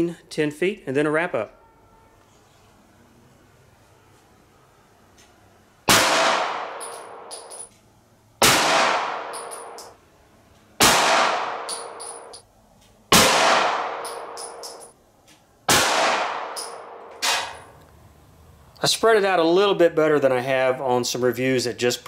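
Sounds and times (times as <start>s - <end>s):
pistol shots with echo: 5.9s - 7.6s, 8.4s - 9.9s, 10.8s - 12.4s, 13.1s - 14.9s, 15.7s - 17.6s
brass cases clinking: 6.8s - 7.8s, 9.3s - 10.0s, 11.6s - 12.5s, 14.0s - 15.0s, 16.5s - 17.8s.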